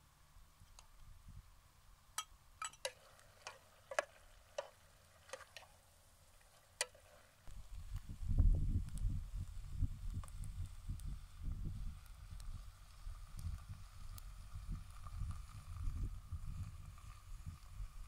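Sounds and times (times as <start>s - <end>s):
metal spoon scraping a pot: 2.6s - 5.7s, 6.8s - 7.2s.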